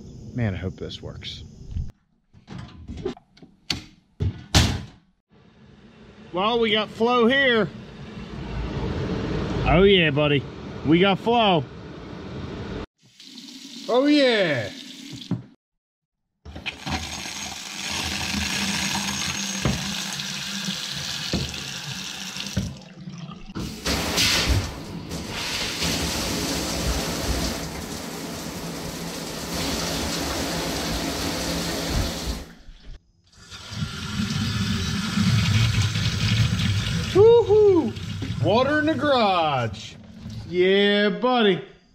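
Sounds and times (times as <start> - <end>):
water running from taps: 13.0 - 15.5, 16.6 - 32.6, 33.4 - 38.8.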